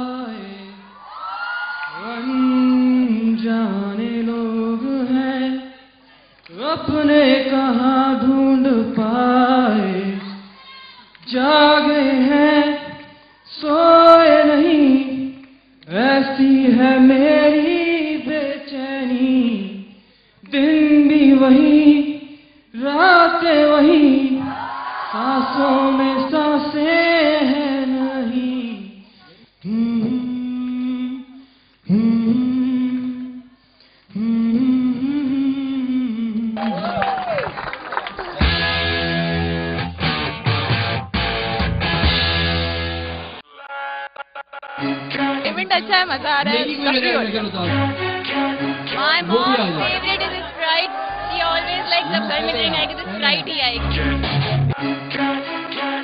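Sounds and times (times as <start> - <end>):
man singing unaccompanied: 1.9 - 5.9, 6.5 - 10.4, 11.2 - 19.9, 20.5 - 24.5, 25.1 - 29.0.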